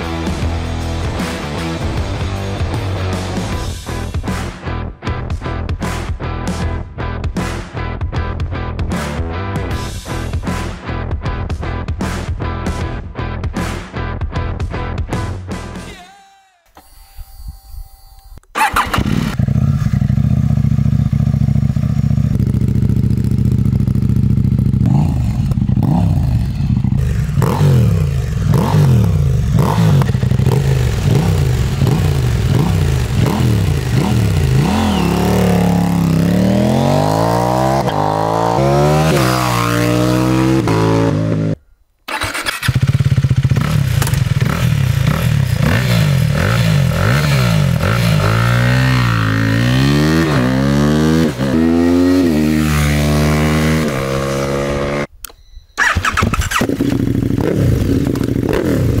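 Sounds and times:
motorcycle engine idling and revving: 0.0s - 4.4s, 18.6s - 55.1s, 55.8s - 59.0s
single-cylinder motorcycle revving: 18.6s - 55.1s, 55.8s - 59.0s.

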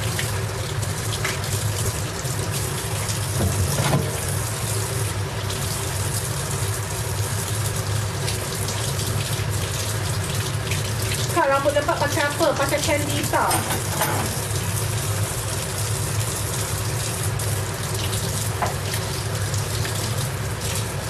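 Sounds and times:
tap running into sink: 3.0s - 4.4s, 13.1s - 14.6s, 18.0s - 20.8s.

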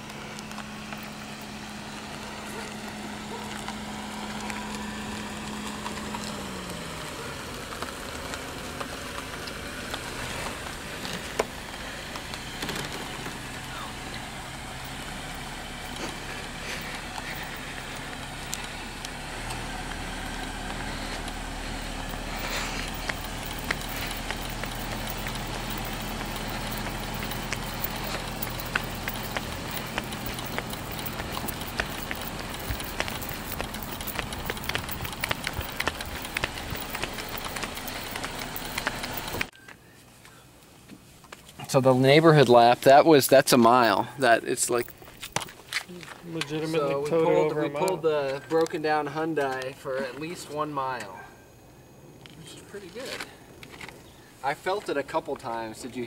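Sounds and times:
tyre noise: 0.0s - 39.6s
car engines humming: 0.0s - 56.0s.

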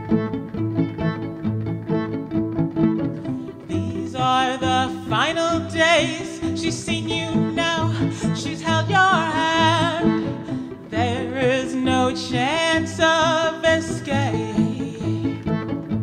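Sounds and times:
low accompaniment with bowed strings: 0.0s - 16.0s
woman singing with vibrato: 3.6s - 15.6s.

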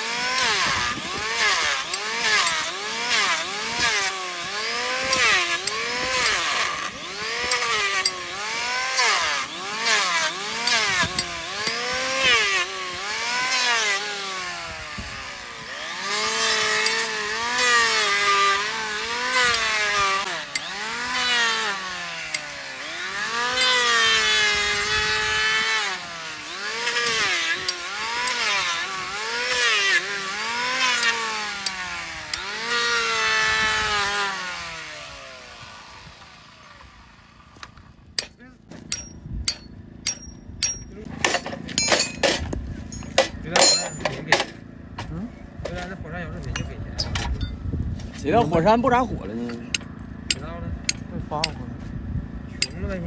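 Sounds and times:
electric planer shaving hoof: 0.0s - 38.0s.

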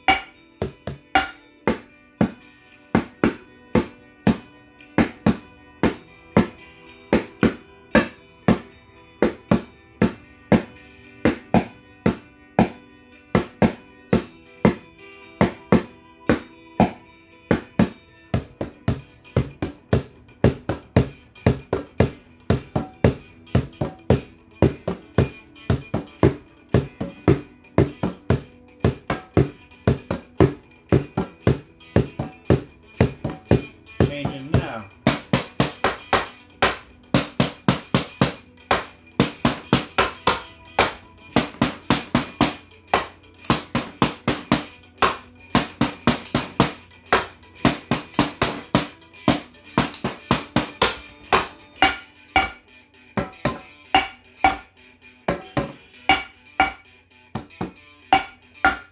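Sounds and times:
ladle and spoon drumming on containers: 0.0s - 1.4s
backing track with guitar: 0.0s - 58.9s.

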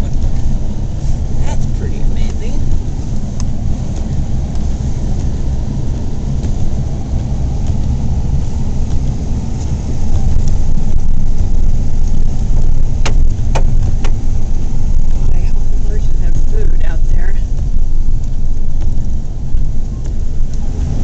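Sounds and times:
car rumbling through snow: 0.0s - 21.0s.

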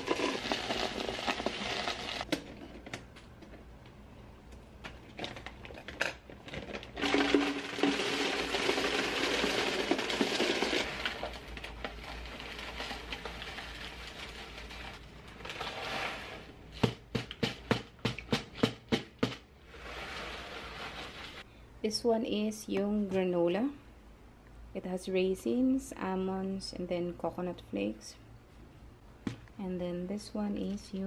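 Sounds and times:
granola pouring into canister: 0.0s - 2.3s, 6.4s - 16.5s.

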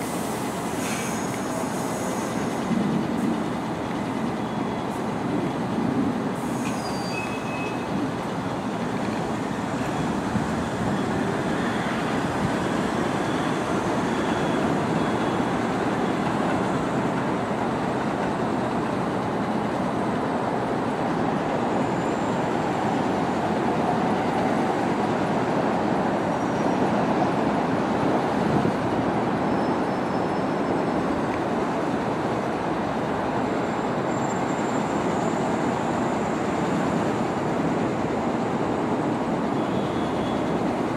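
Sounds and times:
train wheels on rails: 0.0s - 40.9s
high wheel squeals: 6.4s - 17.0s, 21.6s - 23.4s, 29.5s - 31.0s, 33.6s - 37.4s, 39.5s - 40.6s.

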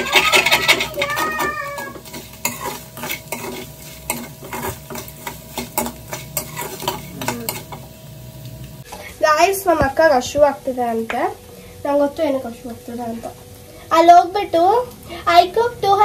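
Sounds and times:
spoon scraping pan: 0.0s - 8.4s
cheese frying in oil: 0.0s - 16.0s.

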